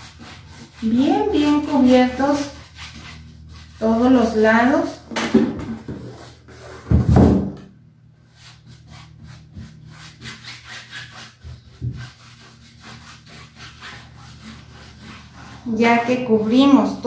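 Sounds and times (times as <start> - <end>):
paintbrush scrubbing canvas: 0.0 - 5.1, 8.2 - 17.0
board thumping: 5.1 - 6.2, 6.8 - 7.7.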